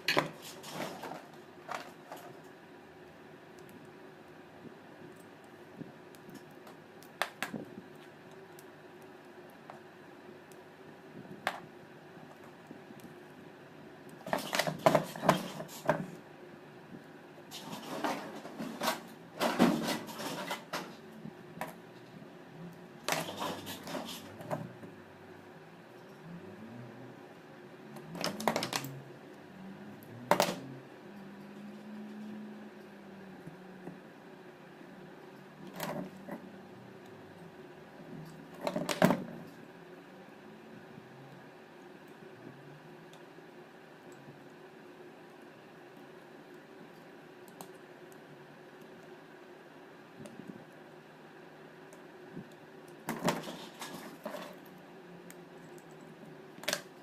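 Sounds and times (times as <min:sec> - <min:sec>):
steady hum: 0:00.0 - 0:57.0.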